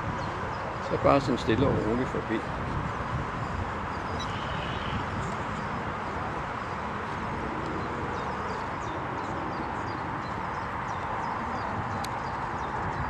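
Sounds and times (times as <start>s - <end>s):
faint bird chirps: 4.0s - 5.0s.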